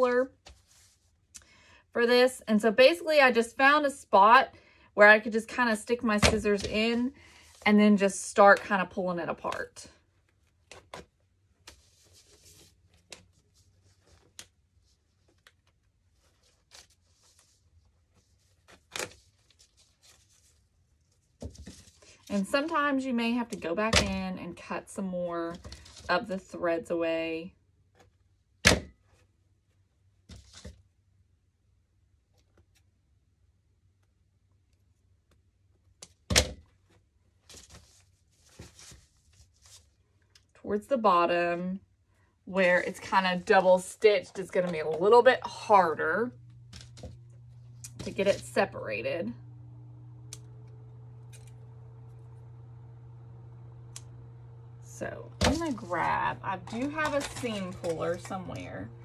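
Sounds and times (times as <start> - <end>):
fabric rustling: 11.5 - 22.3, 36.8 - 40.1.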